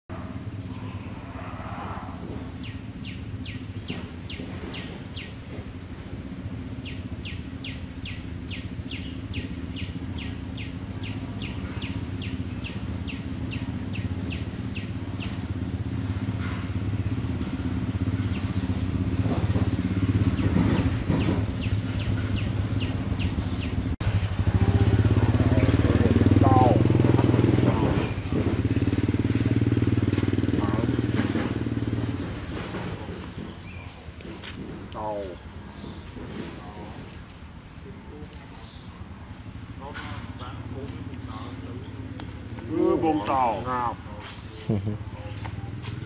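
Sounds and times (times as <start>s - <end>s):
vehicle engine idling: 0.1s - 46.0s
bird chirping: 2.5s - 5.4s, 6.8s - 15.9s, 20.1s - 26.8s.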